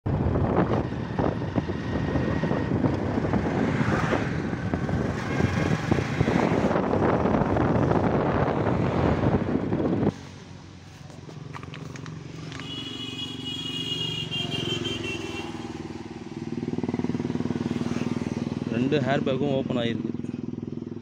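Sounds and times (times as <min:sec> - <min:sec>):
highway traffic: 0:00.0 - 0:21.0
wind buffeting microphone: 0:00.1 - 0:10.2.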